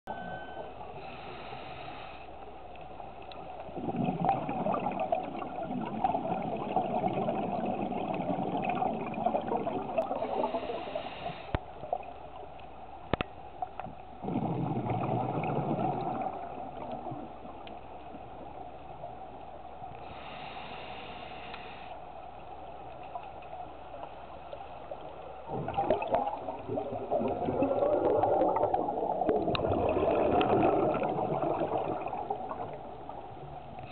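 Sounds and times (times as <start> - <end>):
regulator inhale hiss: 0.9 - 2.4, 10.2 - 11.7, 20.0 - 22.0
rush of exhaled bubbles: 3.6 - 11.4, 14.2 - 17.6, 25.4 - 33.9.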